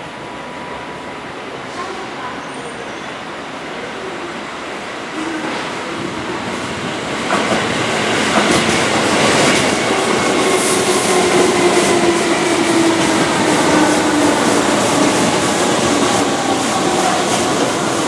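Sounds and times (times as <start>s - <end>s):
electric train passing: 4.6s - 18.0s.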